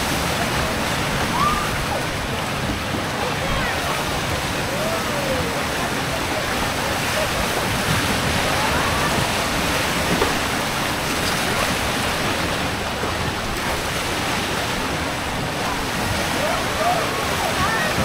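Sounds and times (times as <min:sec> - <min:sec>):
water churning and rushing: 0:00.0 - 0:18.0.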